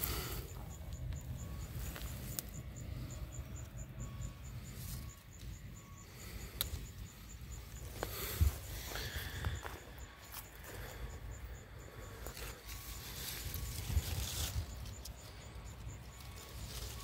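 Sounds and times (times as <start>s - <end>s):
faint high chirp: 0.0s - 17.0s
leaves rustling: 12.1s - 17.0s
wind rumble on microphone: 13.0s - 15.2s.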